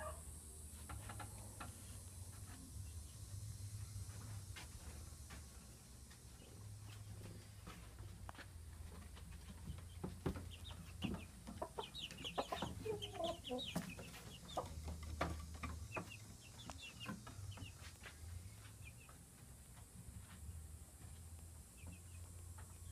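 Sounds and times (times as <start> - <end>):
short high chicken calls: 0.0 - 0.2
chickens clucking: 6.1 - 20.3.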